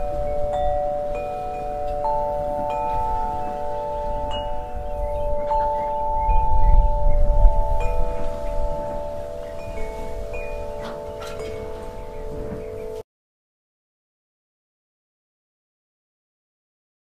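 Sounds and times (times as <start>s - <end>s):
wind chimes ringing: 0.0s - 13.0s
wind rumble on microphone: 0.0s - 13.0s.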